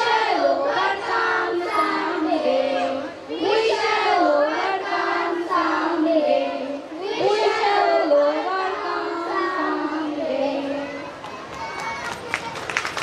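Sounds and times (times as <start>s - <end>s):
children singing together: 0.0s - 11.2s.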